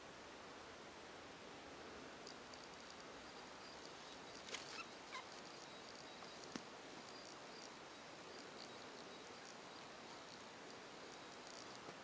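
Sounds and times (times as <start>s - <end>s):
steady hiss: 0.0s - 12.0s.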